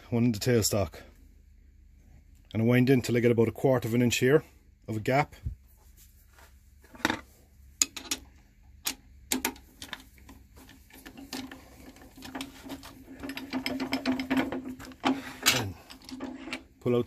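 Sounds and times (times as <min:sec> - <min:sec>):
lathe parts clicking and ticking: 0:08.9 - 0:16.8.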